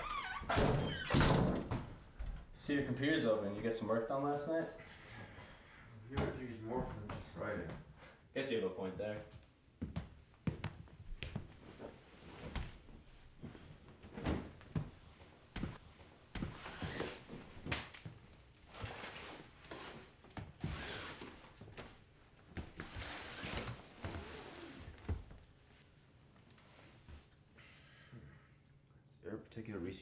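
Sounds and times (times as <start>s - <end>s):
footsteps: 9.2s - 18.2s.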